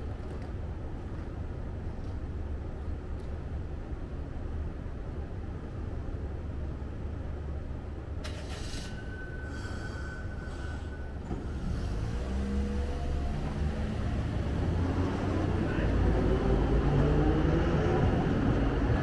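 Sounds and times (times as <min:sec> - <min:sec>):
low rumble of street traffic: 0:00.0 - 0:19.0
tram motor whine: 0:08.3 - 0:19.0.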